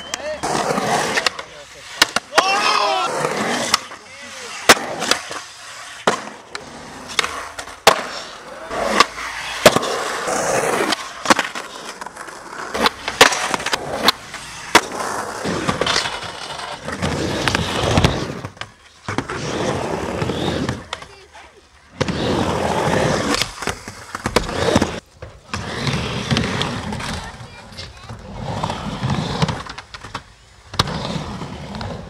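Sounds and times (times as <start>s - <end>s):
skateboard clacks: 0.0s - 19.3s
skateboards rolling on concrete: 0.0s - 32.0s.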